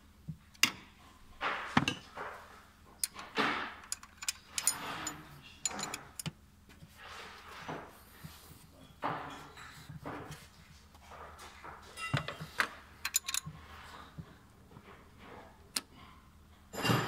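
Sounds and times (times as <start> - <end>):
spanner clinking on metal: 3.8 - 6.4, 13.0 - 13.5.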